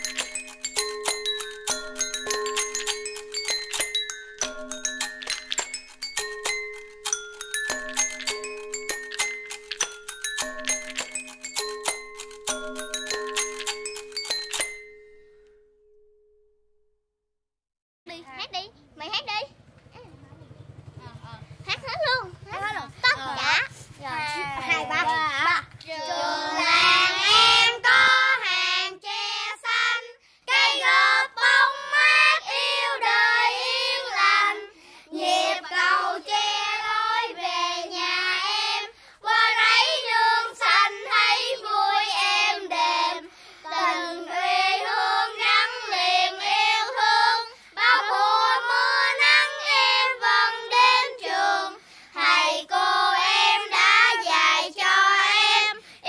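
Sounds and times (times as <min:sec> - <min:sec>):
child singing: 0:22.5 - 0:55.8.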